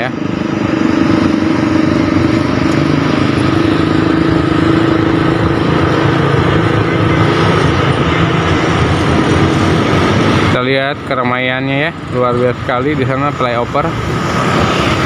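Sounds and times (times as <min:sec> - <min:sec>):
motorcycle engines running: 0:00.0 - 0:15.0
truck engines running: 0:00.0 - 0:15.0.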